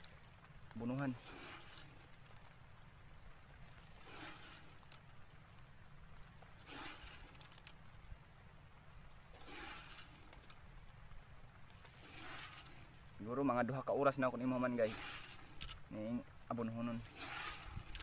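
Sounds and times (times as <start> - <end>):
fertilizer granules swishing scatter: 0.0 - 2.7, 3.4 - 5.4, 6.1 - 7.8, 9.2 - 10.7, 11.5 - 18.0
insects chirring: 0.0 - 18.0.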